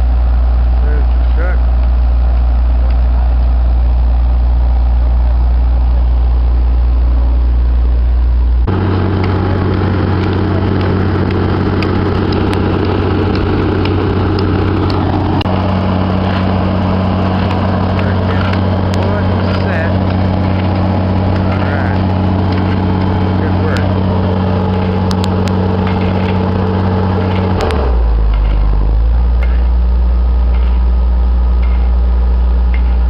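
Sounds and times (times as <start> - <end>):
diesel engines running: 0.0 - 33.0
faint clicks and rattles: 8.7 - 28.8, 31.6 - 32.0.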